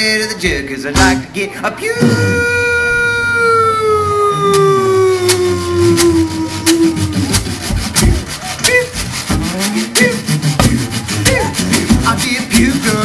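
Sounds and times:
jug band playing: 2.0 - 2.7, 4.6 - 13.0.

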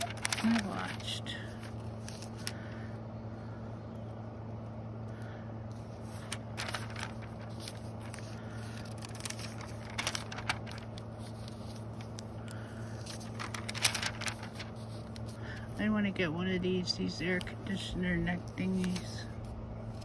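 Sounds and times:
paper pages turning: 0.0 - 2.6, 5.8 - 15.8, 18.4 - 20.0
steady low hum: 0.0 - 20.0.

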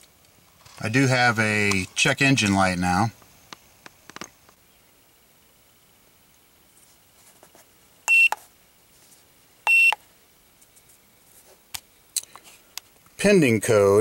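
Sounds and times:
short electronic beeps: 8.1 - 8.4, 9.7 - 10.0.

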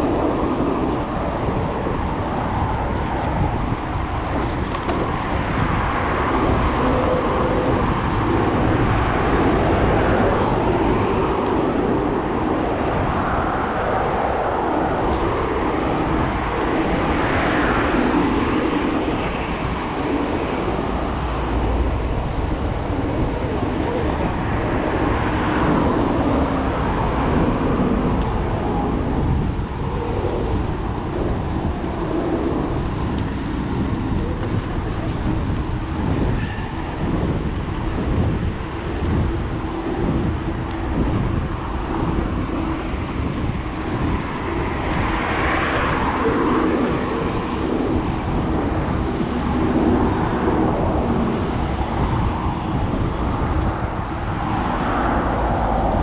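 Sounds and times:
cars passing: 0.0 - 56.0
road traffic noise: 0.0 - 56.0
wind rush on microphone: 0.0 - 56.0.

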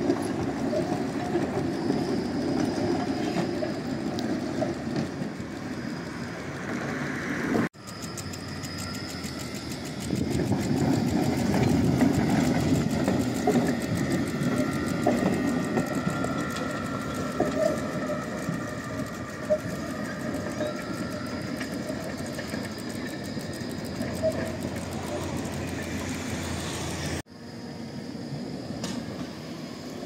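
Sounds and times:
tram wheels rumbling on rails: 0.0 - 30.0
track clicks: 7.8 - 27.2.

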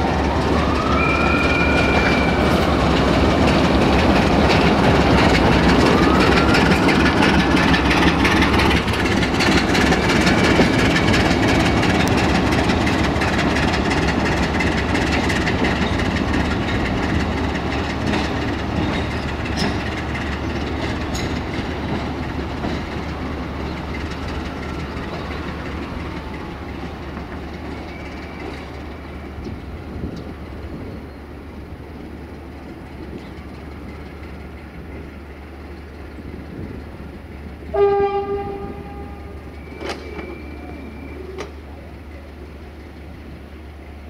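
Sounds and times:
train wheels on rails: 0.0 - 44.0
train horn blast: 37.7 - 39.5.

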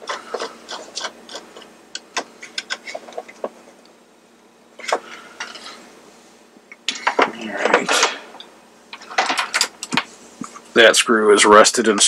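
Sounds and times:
screwdriver clicking and scraping: 0.0 - 3.5.

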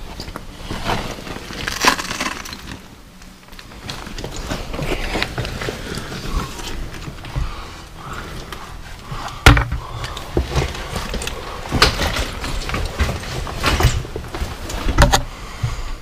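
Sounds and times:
footsteps on slate rubble: 3.6 - 15.8.

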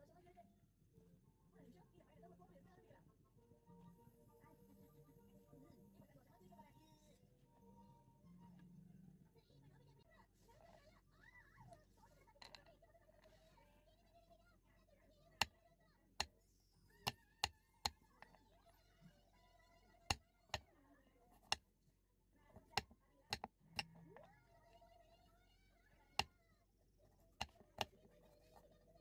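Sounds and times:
knife chopping on wooden board: 22.6 - 23.5.

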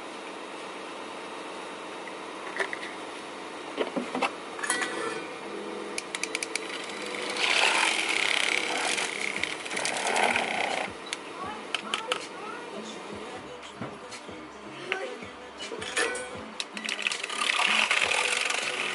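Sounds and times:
sharp clicks: 6.0 - 6.7
small electric machine running: 6.1 - 11.1, 16.8 - 18.9.

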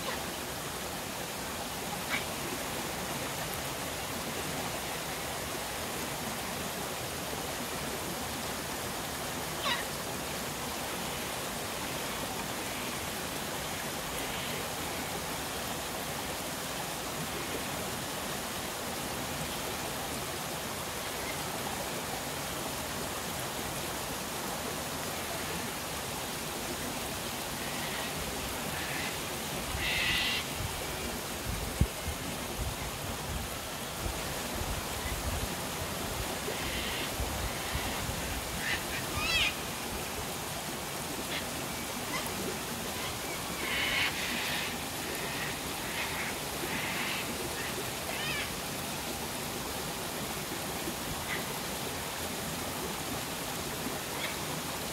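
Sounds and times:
waterfall rushing over rock: 0.0 - 54.9.

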